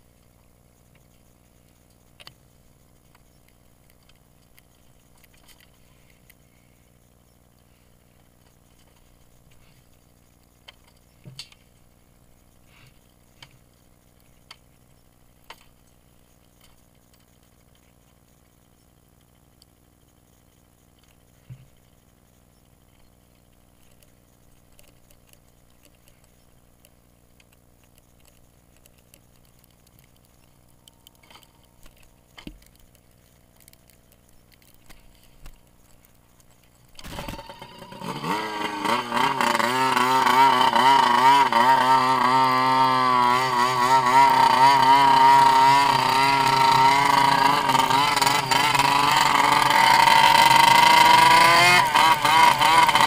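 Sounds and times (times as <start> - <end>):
faint clicks: 0.2 - 2.4, 3.0 - 11.7, 12.4 - 38.2
snowmobile engine revving: 37.0 - 53.0.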